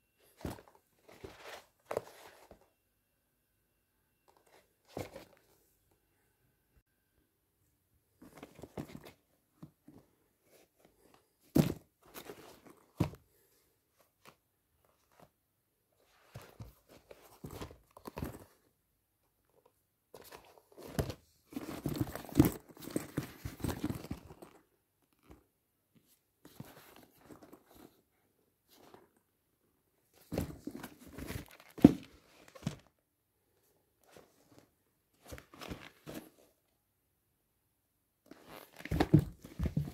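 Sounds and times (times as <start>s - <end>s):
sneakers rustling and scuffing: 38.7s - 39.9s.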